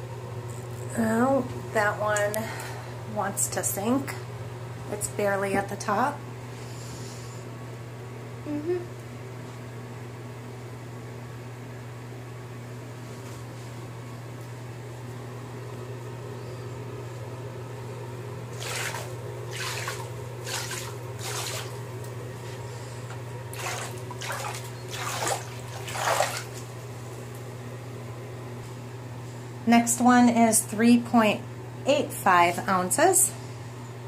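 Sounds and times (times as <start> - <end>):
bathwater swished by hand: 18.5 - 21.9, 23.5 - 26.8.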